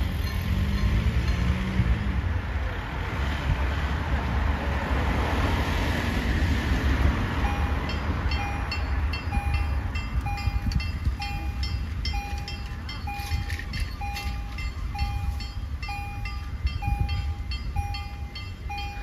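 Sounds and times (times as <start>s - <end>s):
level crossing warning bell: 0.0s - 2.2s, 7.4s - 19.0s
car passing: 0.0s - 19.0s.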